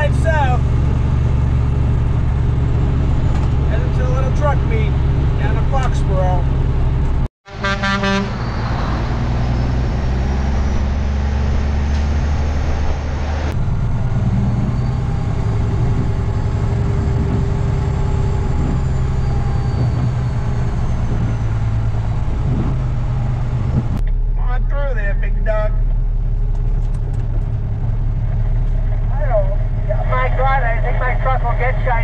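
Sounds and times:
road noise: 0.0s - 32.0s
truck diesel engine running: 0.0s - 32.0s
horn toot: 7.5s - 8.7s.

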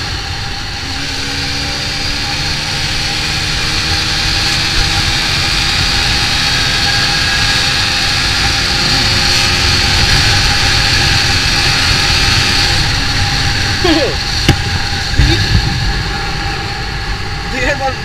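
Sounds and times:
motorcycle engine revving high: 0.0s - 18.0s
wind rush over microphone: 0.0s - 18.0s.

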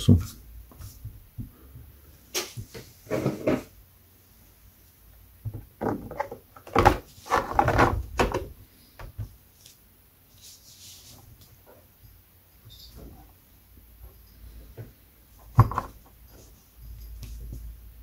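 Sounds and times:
plastic shell knocks and rattles: 5.4s - 8.5s, 15.5s - 16.0s.

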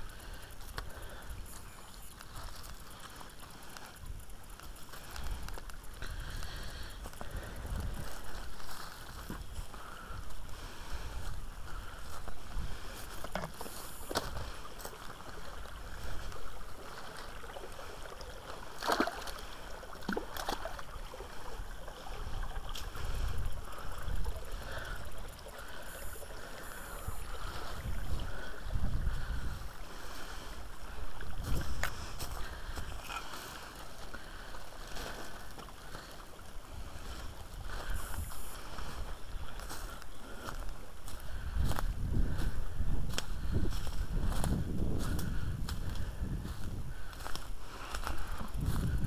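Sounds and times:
stream splashing over rocks: 13.5s - 23.0s.

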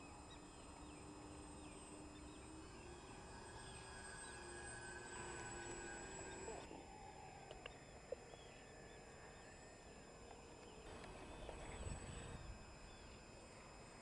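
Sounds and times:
faint bird chirps: 6.1s - 14.0s.

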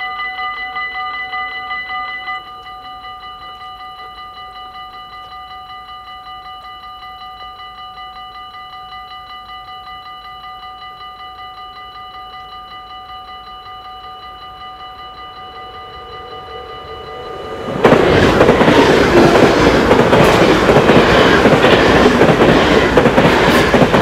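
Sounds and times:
level crossing bells ringing: 0.0s - 24.0s.

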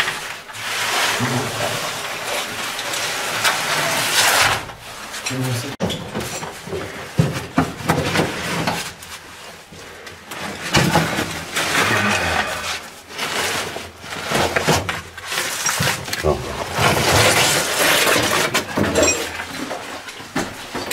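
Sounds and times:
gear scraping against rock: 15.2s - 19.9s.

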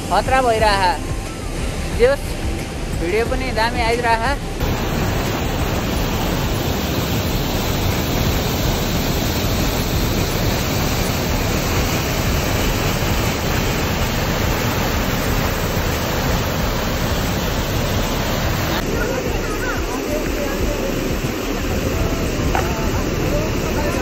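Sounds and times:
water rushing down a spillway: 4.6s - 24.0s.

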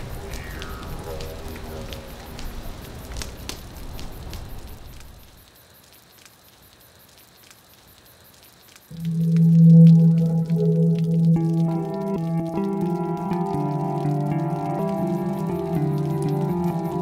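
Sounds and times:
crackling clicks: 0.0s - 17.0s
low rumble: 8.9s - 12.6s.

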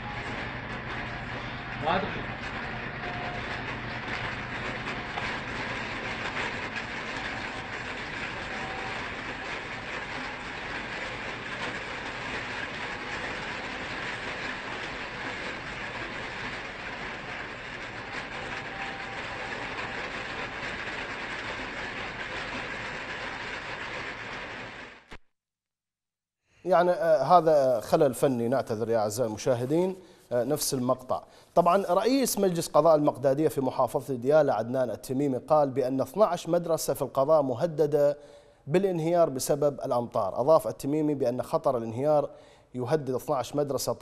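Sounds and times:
heavy rain on flooded street: 3.2s - 25.0s.

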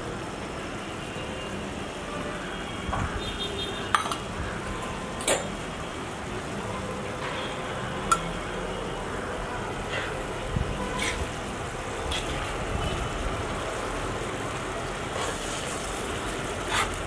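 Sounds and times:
steady background noise: 0.0s - 17.0s
spoon clinking steel bowl: 4.0s - 4.3s.

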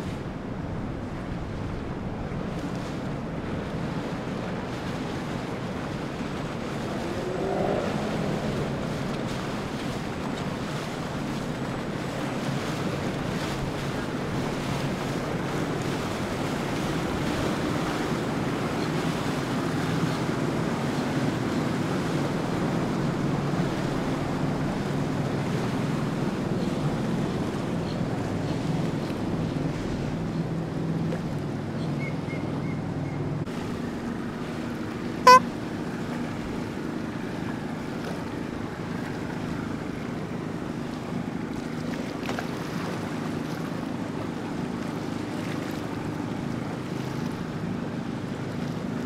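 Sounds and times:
wind on microphone: 0.0s - 30.8s
outboard boat engines: 0.0s - 49.0s
water wash: 1.3s - 31.6s.

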